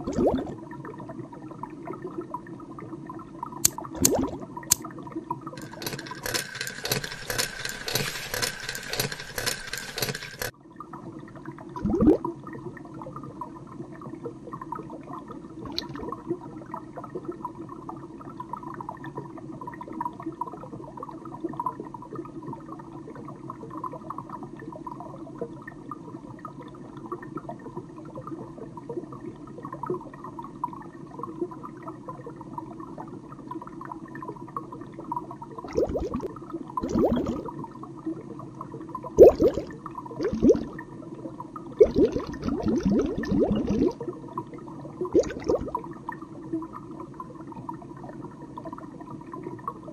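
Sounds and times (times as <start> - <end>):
underwater bubbling and gurgling: 0.0 - 6.4, 7.2 - 49.9.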